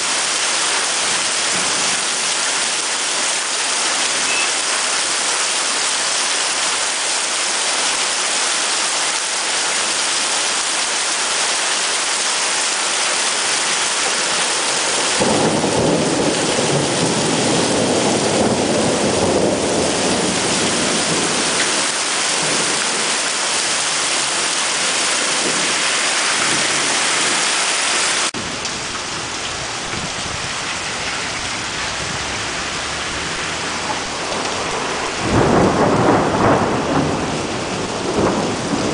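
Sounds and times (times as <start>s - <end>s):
steady rain hiss: 0.0s - 38.9s
rolling rumble of thunder: 14.7s - 24.4s, 28.4s - 38.9s.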